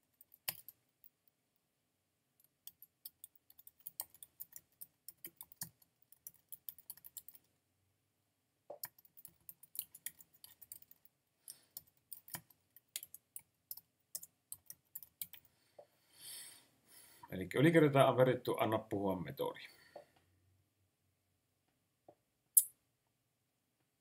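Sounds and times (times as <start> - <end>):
typing on computer keyboard: 0.0 - 1.2, 2.6 - 7.5, 8.7 - 15.5.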